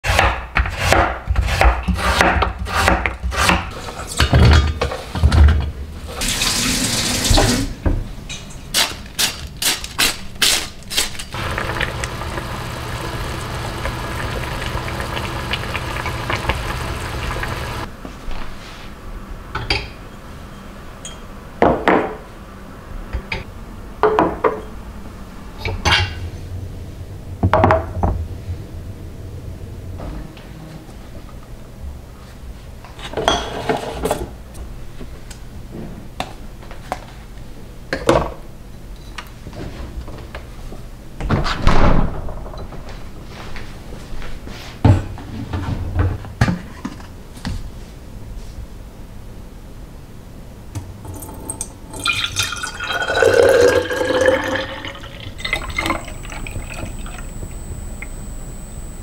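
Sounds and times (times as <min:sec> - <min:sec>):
running tap water: 0:06.2 - 0:07.6, 0:11.4 - 0:17.9, 0:51.1 - 0:58.1
pot simmering: 0:11.4 - 0:17.9, 0:51.0 - 0:59.0.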